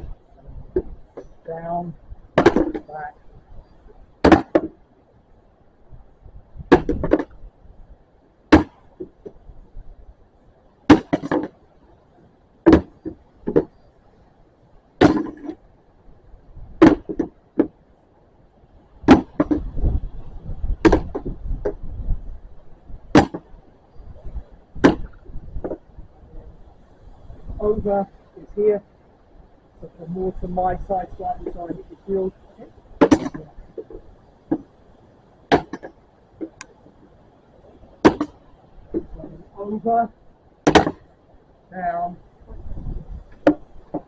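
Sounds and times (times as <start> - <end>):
swords knocking on wooden shields: 4.2 - 4.8, 10.9 - 11.5, 15.0 - 15.6, 23.2 - 23.5, 33.0 - 33.4, 35.5 - 36.6, 38.0 - 38.4, 40.7 - 41.0.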